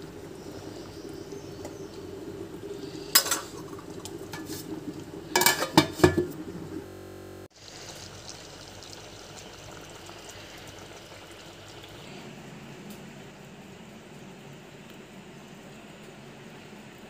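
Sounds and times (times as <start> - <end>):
curry simmering hiss: 0.0 - 6.8, 7.5 - 17.0
utensil clinking on steel pot: 3.1 - 3.6, 5.3 - 6.4.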